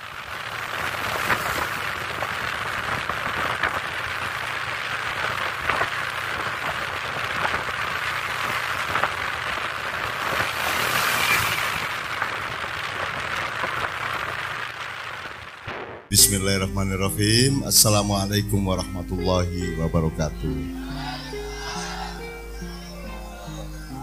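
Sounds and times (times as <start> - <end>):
faint crackles: 0.0 - 16.2
steady rain-like hiss: 0.0 - 24.0.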